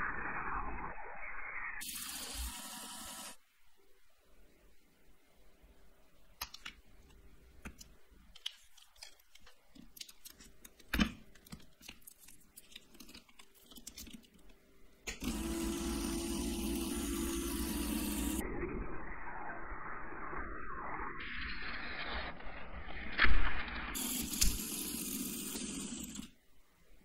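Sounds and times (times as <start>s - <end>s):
electric motor humming: 1.8s - 3.4s, 15.1s - 18.4s, 24.0s - 26.3s
plastic parts clicking together: 6.4s - 6.8s, 7.6s - 15.2s.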